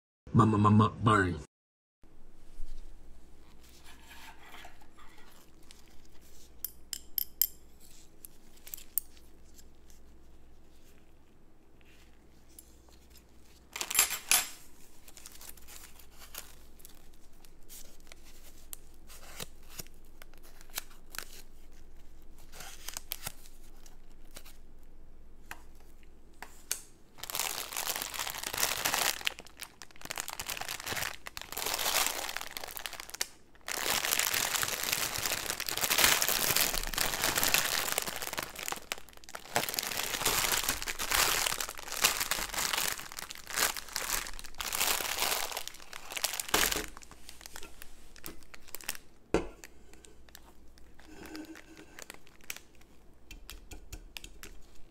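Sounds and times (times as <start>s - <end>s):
plastic packaging crinkling: 4.6s - 6.6s, 12.1s - 24.6s, 27.2s - 53.1s
plastic ripping: 27.2s - 49.1s, 50.2s - 52.8s.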